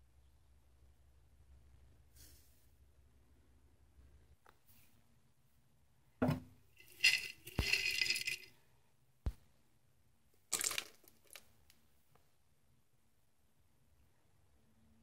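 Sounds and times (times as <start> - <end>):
glass jar knocking: 6.2 - 8.4.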